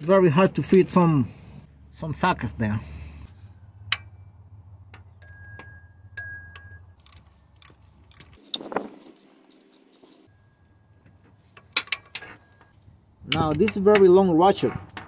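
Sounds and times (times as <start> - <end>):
metal hand tools clinking: 11.5 - 13.9.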